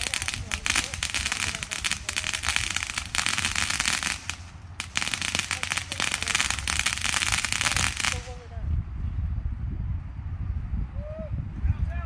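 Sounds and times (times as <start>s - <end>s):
firecrackers popping and crackling: 0.0s - 8.5s.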